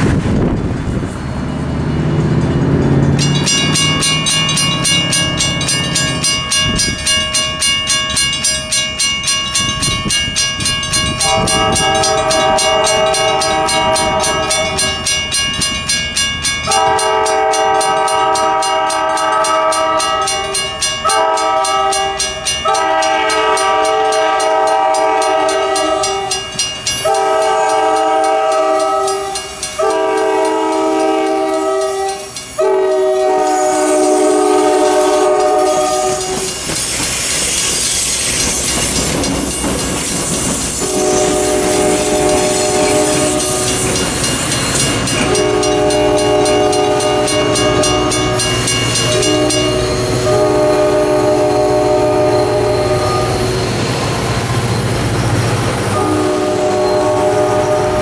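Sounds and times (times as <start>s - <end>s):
train wheels and engine noise: 0.0s - 58.0s
crossing bells ringing: 1.1s - 58.0s
locomotive air horn blasts: 11.2s - 15.0s, 16.7s - 36.6s, 40.8s - 44.0s, 45.1s - 53.7s, 55.6s - 58.0s.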